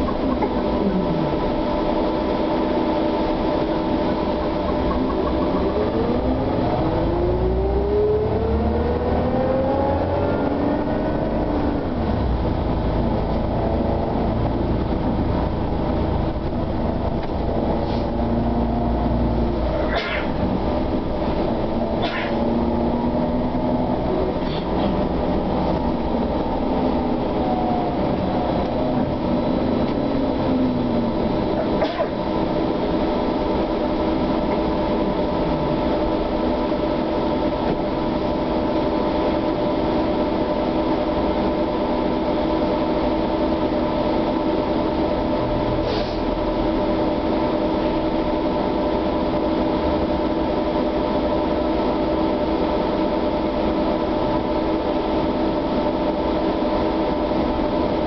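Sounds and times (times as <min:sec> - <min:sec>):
bus rolling and road rumble: 0:00.0 - 0:58.0
electrical whine: 0:00.0 - 0:58.0.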